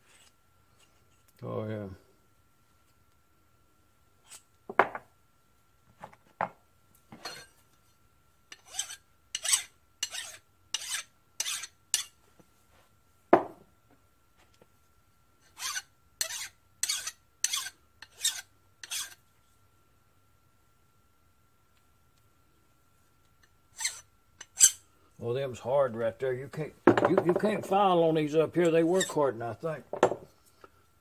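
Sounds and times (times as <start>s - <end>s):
hand file strokes on metal: 0.0s - 1.2s, 4.2s - 4.5s, 8.5s - 12.2s, 15.4s - 19.2s, 23.7s - 24.9s.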